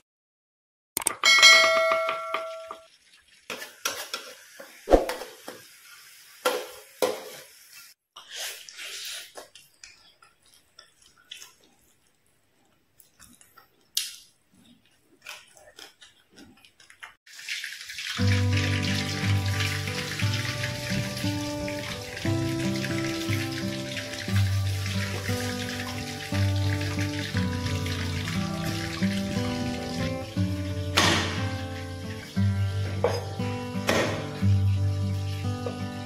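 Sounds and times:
dishes clinking while eating: 1.2s - 2.9s, 32.8s - 34.4s.

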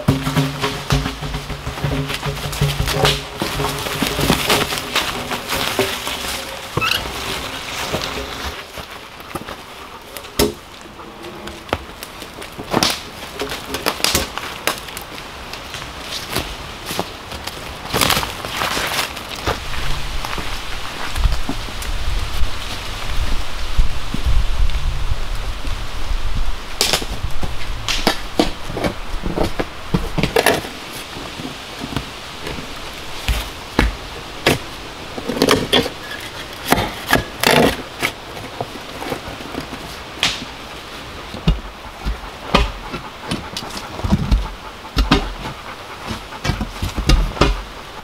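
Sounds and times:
shovel chopping and scraping soil: 0.0s - 8.9s, 35.3s - 39.2s, 41.4s - 47.7s.

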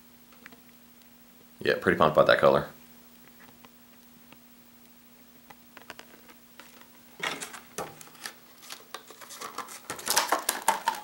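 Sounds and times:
faint steady hum: 0.0s - 11.0s
plastic packaging crinkling: 5.8s - 11.0s.

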